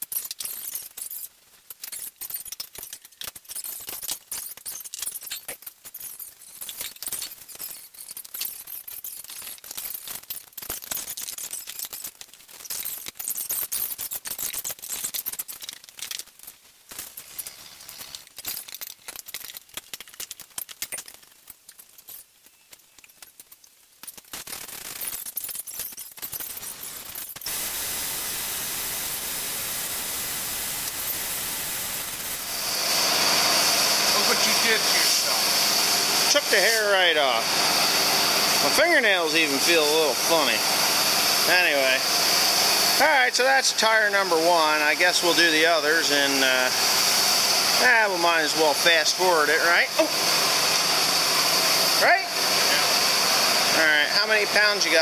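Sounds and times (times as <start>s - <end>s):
hand tools clinking and scraping: 0.0s - 27.6s, 32.2s - 37.8s.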